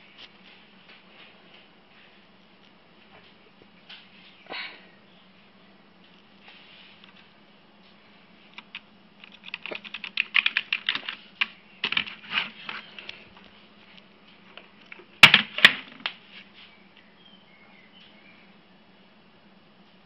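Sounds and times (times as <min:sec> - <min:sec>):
computer hum: 0:04.9 - 0:16.2.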